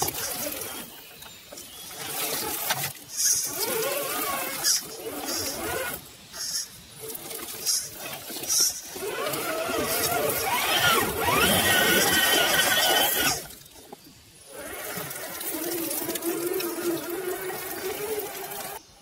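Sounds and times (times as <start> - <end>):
short hissing bursts: 6.2 - 7.0
electric motor whining: 9.0 - 13.5.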